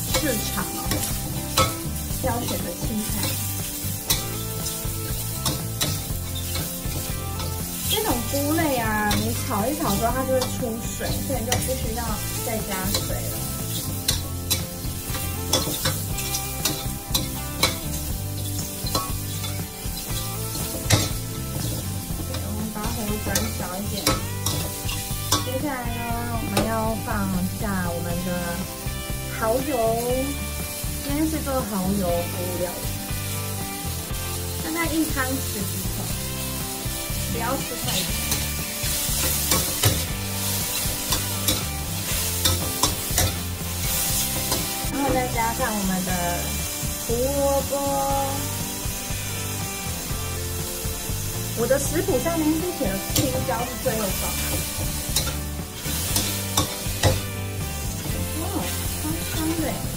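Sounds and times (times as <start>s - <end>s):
ladle scraping in a wok: 0.0s - 25.6s, 37.6s - 45.2s, 53.1s - 59.9s
frying sizzle: 0.0s - 59.9s
spatula clinking against wok: 0.1s - 1.8s, 40.7s - 44.7s.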